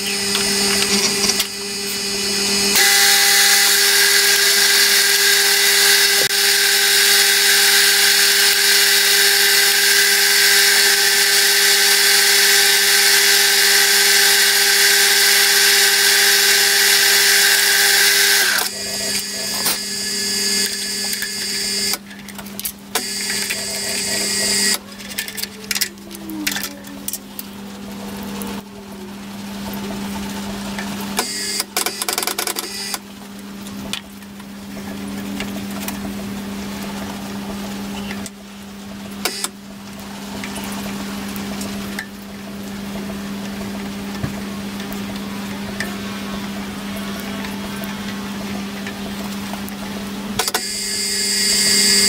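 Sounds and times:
drill bit cutting steel: 0.0s - 22.0s, 23.0s - 24.8s, 31.2s - 33.0s, 50.4s - 52.0s
milling machine humming: 0.0s - 52.0s.

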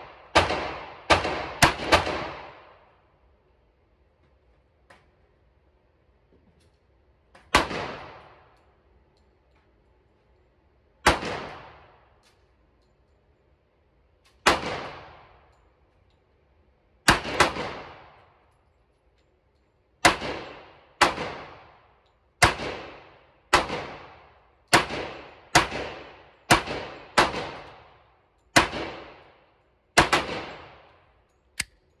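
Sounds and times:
pistol shots: 17.1s - 18.2s, 22.4s - 28.0s, 30.0s - 30.9s.

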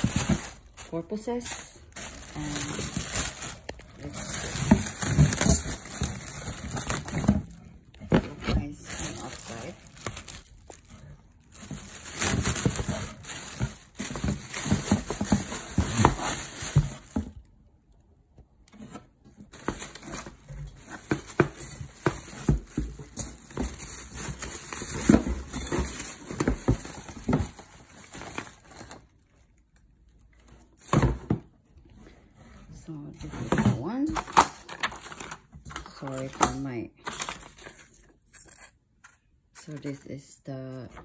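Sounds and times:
plastic wrapping crinkling: 0.0s - 17.5s, 19.5s - 30.9s.

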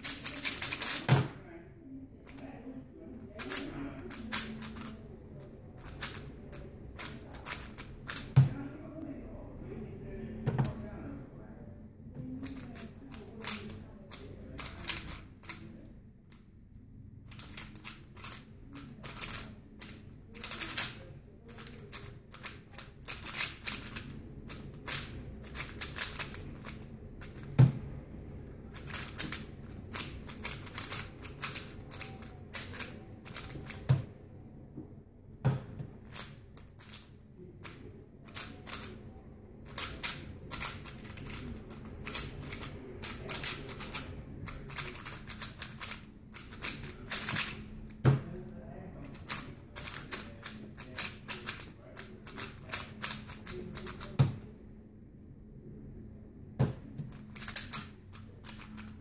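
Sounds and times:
plastic puzzle cube clicking: 0.0s - 1.1s, 3.4s - 5.0s, 5.8s - 8.5s, 12.3s - 15.6s, 17.3s - 27.8s, 28.7s - 34.0s, 36.0s - 39.0s, 39.7s - 44.1s, 44.7s - 47.6s, 49.1s - 54.4s, 57.1s - 59.0s.

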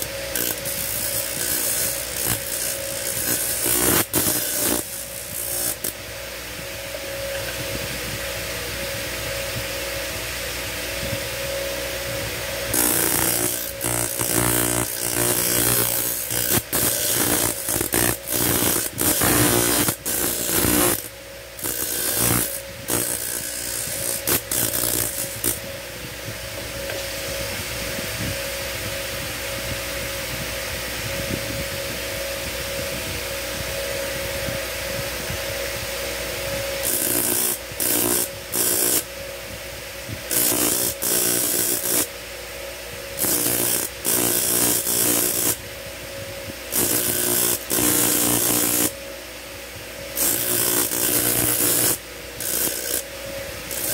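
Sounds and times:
metal grinding on disc: 0.0s - 6.0s, 12.7s - 25.7s, 36.8s - 39.0s, 40.3s - 42.1s, 43.2s - 45.6s, 46.7s - 48.9s, 50.2s - 53.0s, 53.7s - 53.9s
grinder motor running: 0.0s - 6.1s, 12.0s - 28.1s, 35.0s - 39.1s, 40.1s - 42.1s, 43.1s - 45.6s, 46.6s - 49.0s, 50.1s - 53.9s.

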